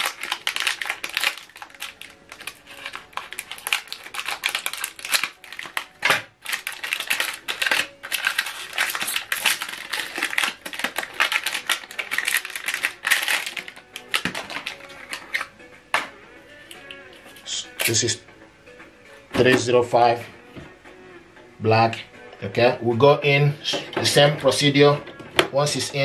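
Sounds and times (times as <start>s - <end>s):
plastic packaging crinkling: 0.0s - 15.5s.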